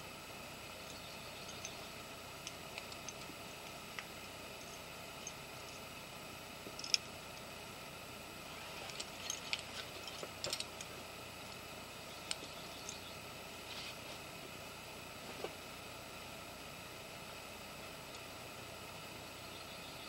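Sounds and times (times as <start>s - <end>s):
steady hiss: 0.0s - 20.0s
faint clicks and light rattles: 0.8s - 5.9s, 6.7s - 7.5s, 8.8s - 13.1s.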